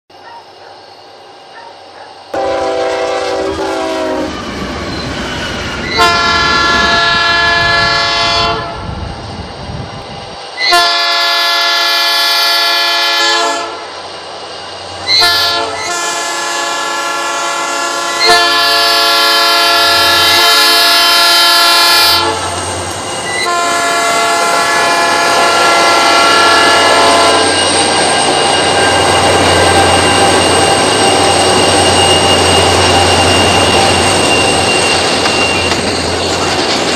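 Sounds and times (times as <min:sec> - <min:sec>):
train wheels rattling: 0:00.4 - 0:36.9
locomotive air horn blasts: 0:02.4 - 0:04.4, 0:05.9 - 0:08.8, 0:10.6 - 0:13.8, 0:15.0 - 0:22.6, 0:23.4 - 0:27.6
locomotive engine rumble: 0:13.6 - 0:36.9.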